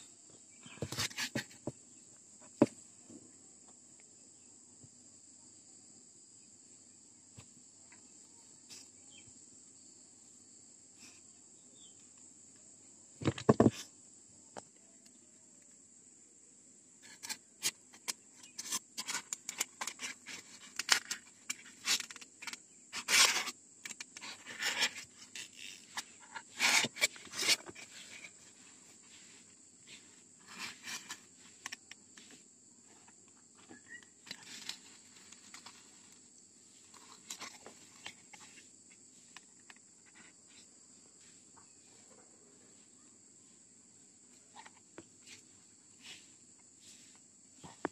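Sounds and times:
scrapes and clicks on foam: 0:00.7 - 0:01.8, 0:17.0 - 0:32.4.

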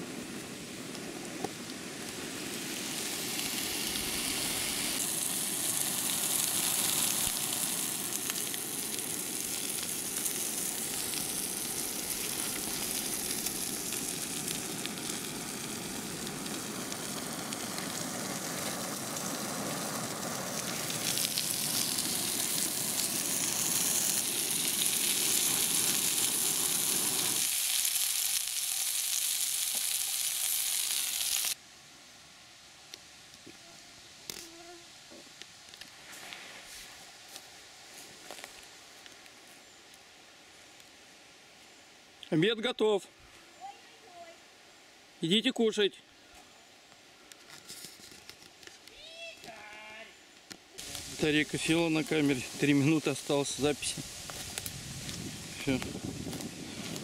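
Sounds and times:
sausage sizzling in frying pan: 0:00.0 - 0:31.6, 0:50.8 - 0:57.0.

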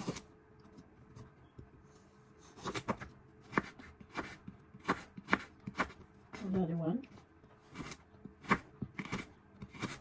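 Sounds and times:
knife slicing carrot on board: 0:02.4 - 0:06.4, 0:07.6 - 0:10.0.

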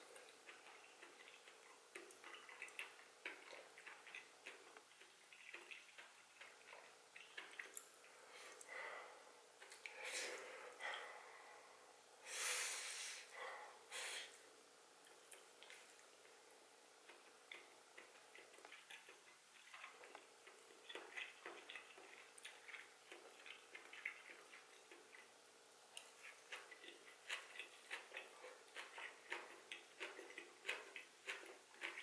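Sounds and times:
person chewing with mouth closed: 0:00.0 - 0:10.0, 0:17.0 - 0:25.3, 0:25.9 - 0:32.0.

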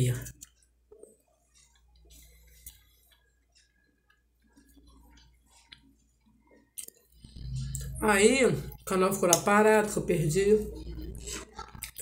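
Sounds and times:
faint chewing of soft food: 0:00.2 - 0:08.0, 0:10.6 - 0:12.0.

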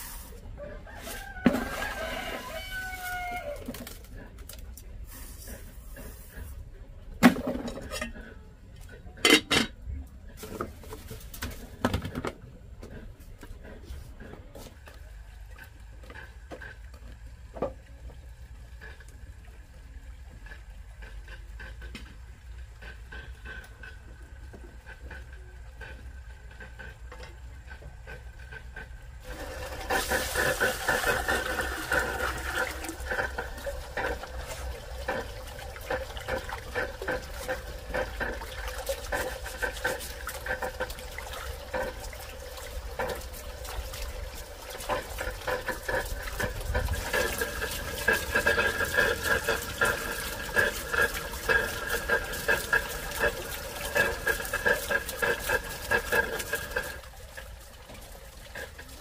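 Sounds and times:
water running and splashing: 0:00.9 - 0:04.1, 0:29.2 - 0:59.0.

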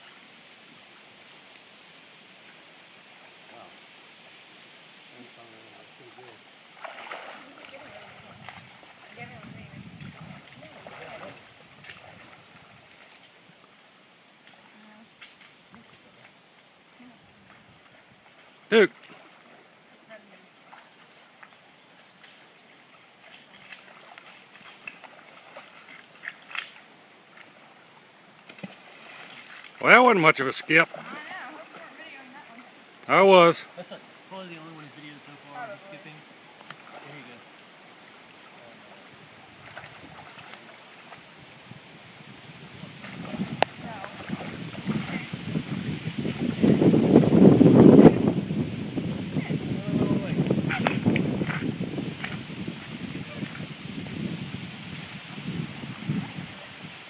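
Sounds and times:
creek flowing over rocks: 0:00.0 - 0:57.0
small water splashes: 0:06.0 - 0:13.8, 0:14.4 - 0:32.8, 0:34.8 - 0:47.0.

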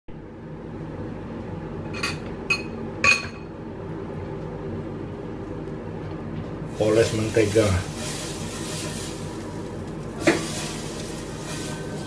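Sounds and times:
steady low hum: 0:00.1 - 0:12.0
kitchenware clinking: 0:01.9 - 0:03.5.

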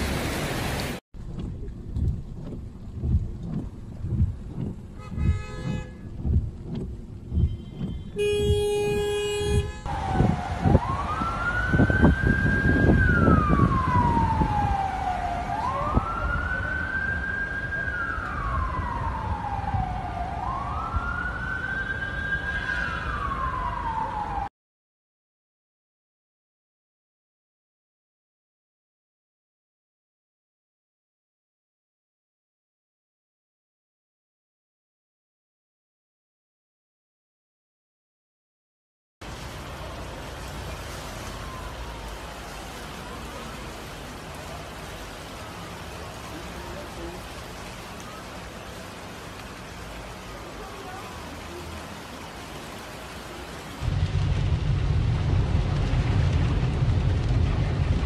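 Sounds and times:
heavy rain on flooded street: 0:00.0 - 0:01.0, 0:05.0 - 0:24.5, 0:39.2 - 0:58.0
low background rumble: 0:01.2 - 0:09.7, 0:53.8 - 0:58.0
siren wailing: 0:07.3 - 0:24.5, 0:41.1 - 0:43.4.

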